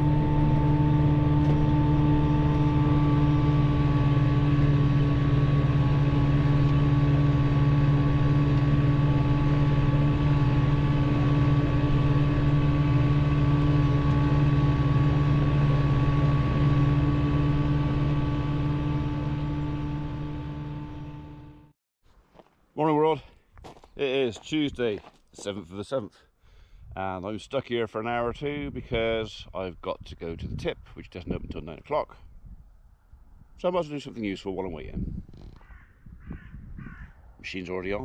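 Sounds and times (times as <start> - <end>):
tractor engine and mower running: 0.0 - 21.8.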